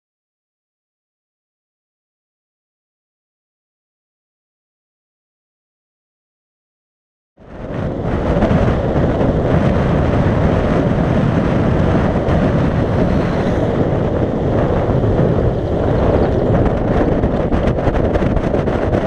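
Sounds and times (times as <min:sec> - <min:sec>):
wind buffeting microphone: 0:07.4 - 0:19.0.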